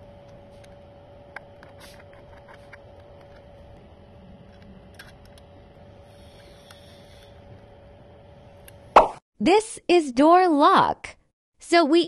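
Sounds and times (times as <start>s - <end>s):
faint steady hum: 0.0s - 9.0s.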